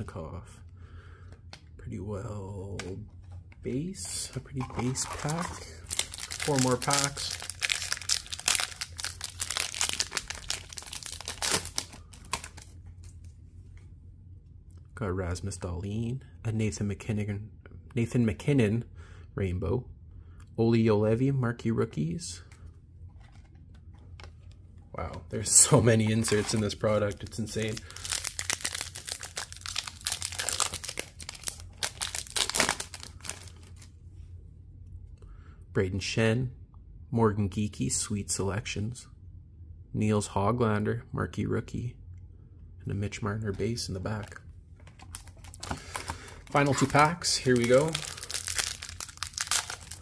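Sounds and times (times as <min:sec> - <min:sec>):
foil wrapper tearing and crinkling: 0:04.8 - 0:12.7, 0:26.1 - 0:33.9, 0:45.1 - 0:50.0.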